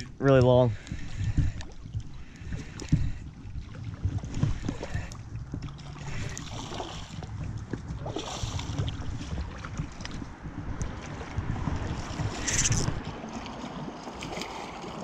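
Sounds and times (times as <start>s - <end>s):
wind rumble on microphone: 0.0s - 15.0s
stream running over gravel: 10.0s - 15.0s
fish splashing at surface: 12.0s - 15.0s.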